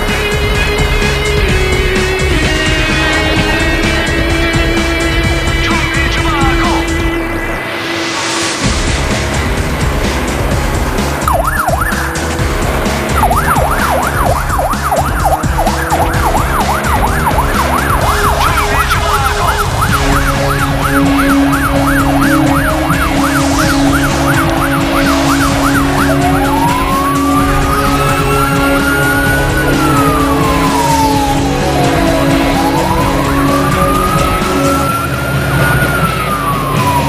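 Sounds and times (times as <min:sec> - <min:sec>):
fire engine siren: 0:11.2 - 0:37.0.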